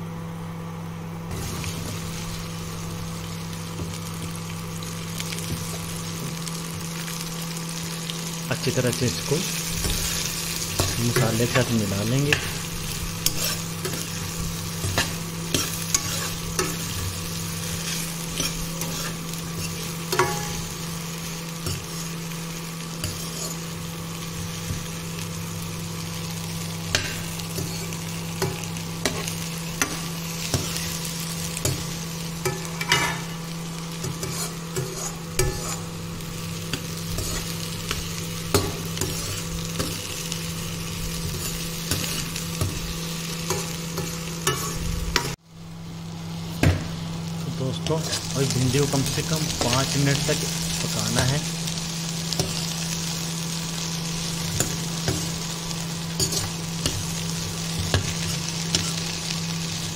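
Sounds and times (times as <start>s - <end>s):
okra sizzling in a pan: 1.2s - 59.9s
spatula scraping a pan: 13.2s - 20.5s, 23.0s - 23.7s, 34.0s - 35.9s, 37.1s - 37.6s.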